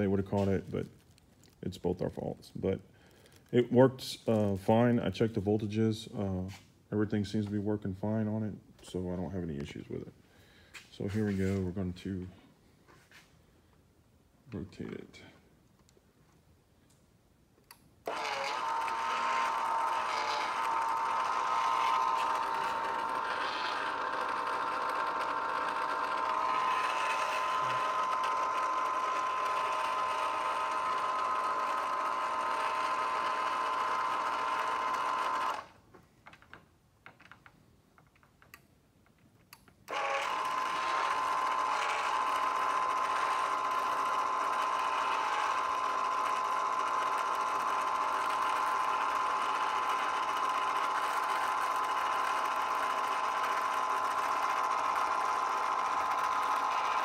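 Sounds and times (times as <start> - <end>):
motor steady mechanical whine: 17.6 - 35.8, 39.8 - 57.0.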